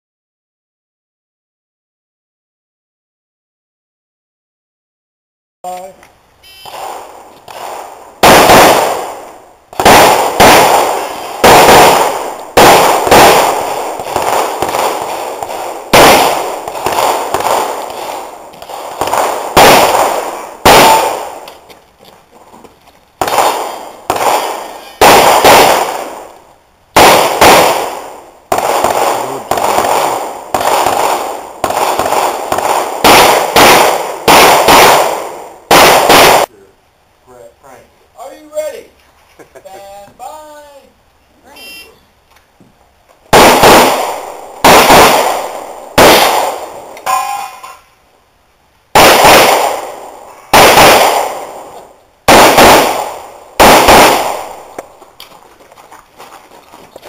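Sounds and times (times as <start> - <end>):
handgun shots with echo: 9.8 - 13.6, 43.4 - 47.8, 50.5 - 51.6, 52.3 - 54.9.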